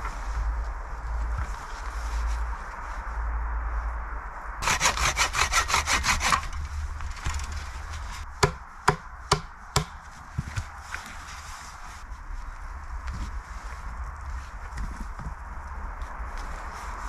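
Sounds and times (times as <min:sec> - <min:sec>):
hand saw cutting wood: 0:04.6 - 0:06.6
hatchet chopping wood: 0:08.4 - 0:10.0.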